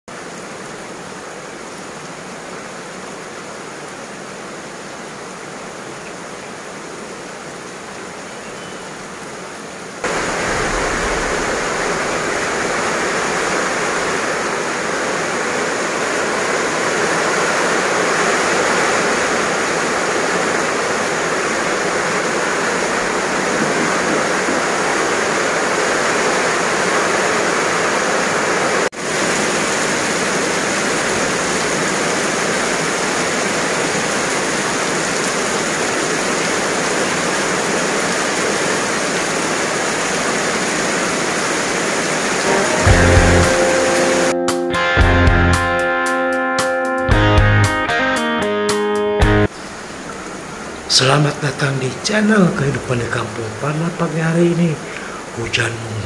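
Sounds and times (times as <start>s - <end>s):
heavy rain falling: 8.8s - 45.8s, 49.4s - 56.0s.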